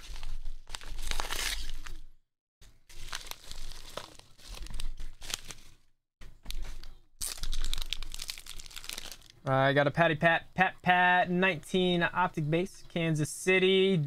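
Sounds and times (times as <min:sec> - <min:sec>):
mailer tearing open: 0:00.1 - 0:02.0
plastic bag crinkling: 0:02.8 - 0:05.8, 0:06.5 - 0:09.4.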